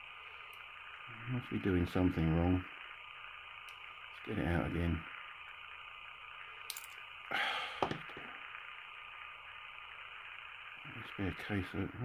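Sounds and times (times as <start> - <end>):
person breathing out: 7.3 - 8.3.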